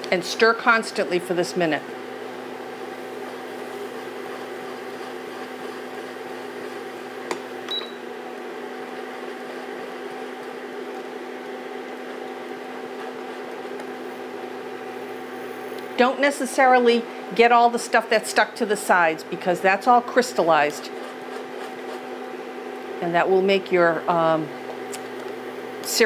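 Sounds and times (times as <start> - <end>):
caramel bubbling in a saucepan: 0.0 - 16.3
induction cooktop hum: 0.0 - 26.0
wooden spoon stirring: 2.8 - 7.2, 8.8 - 14.0, 20.4 - 22.3.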